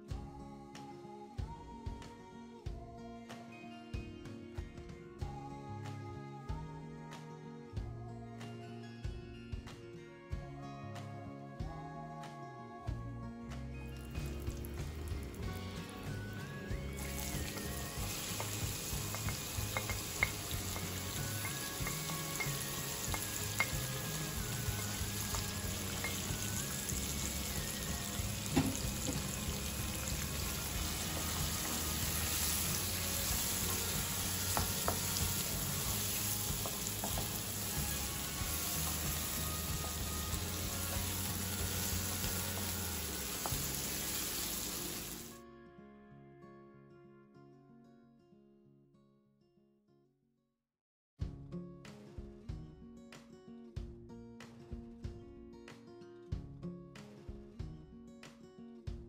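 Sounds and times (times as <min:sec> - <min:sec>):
onions sizzling in a wok: 0:14.0 - 0:45.4
wooden spoon knocking on pan: 0:18.1 - 0:27.4, 0:28.4 - 0:29.8, 0:33.4 - 0:43.8.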